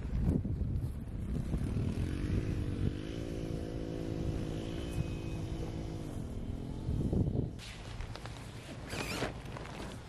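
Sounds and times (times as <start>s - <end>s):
wind rumble on microphone: 0.0s - 8.2s
motor engine droning: 1.4s - 7.6s.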